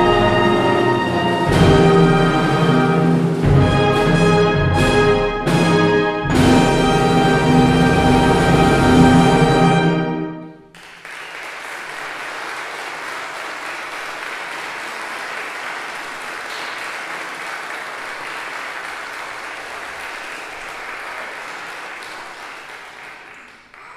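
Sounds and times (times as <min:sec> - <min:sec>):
audience applauding: 0:10.7 - 0:23.9.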